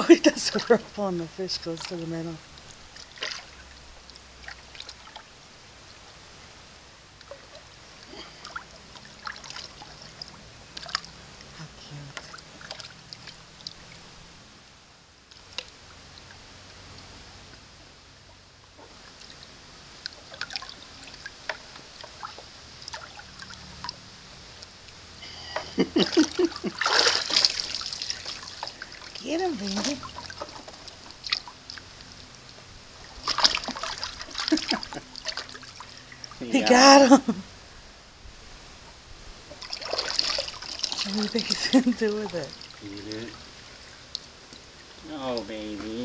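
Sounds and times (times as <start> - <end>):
small splashes: 0.0 - 6.0, 7.2 - 14.2, 15.3 - 17.1, 18.8 - 37.2, 39.5 - 45.5
water swirling in metal bucket: 0.2 - 5.3, 8.3 - 11.2, 11.8 - 14.0, 18.9 - 24.1, 25.7 - 32.0, 32.9 - 36.9, 39.4 - 45.4.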